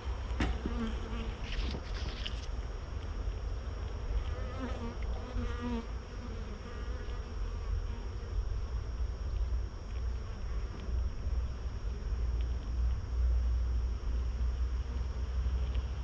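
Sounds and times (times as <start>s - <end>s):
honeybees buzzing: 0.0s - 12.7s
steady low rumble: 0.0s - 16.0s.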